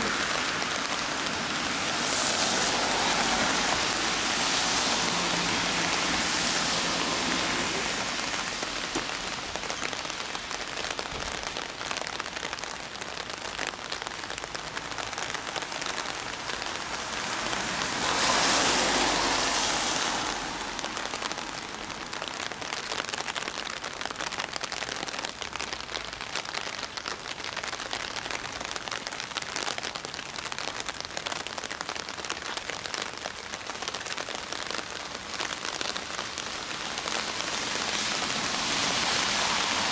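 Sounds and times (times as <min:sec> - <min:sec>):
loud rush of noise: 0:00.0 - 0:11.5, 0:15.2 - 0:22.2
rain falling on wet ground: 0:00.0 - 0:39.9.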